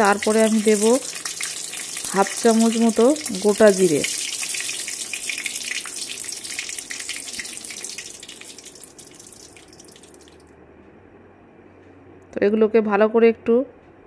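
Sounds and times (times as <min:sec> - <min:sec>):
spices sizzling in hot oil: 0:00.0 - 0:10.4.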